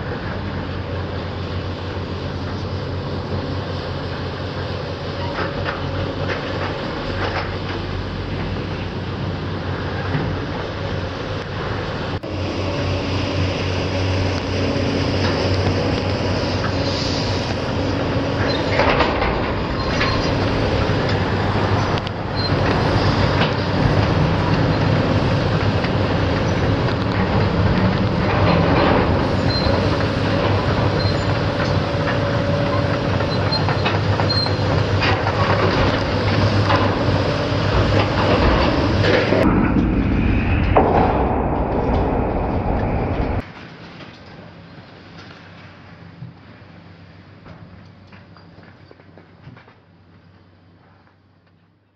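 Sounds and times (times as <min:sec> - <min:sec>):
excavator engine running under load: 0:00.0 - 0:50.8
scrap metal scraping and clanging: 0:16.5 - 0:24.8.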